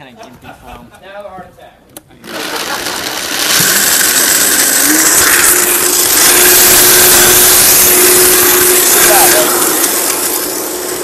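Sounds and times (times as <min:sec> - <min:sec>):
blender whirring: 0:02.2 - 0:11.0.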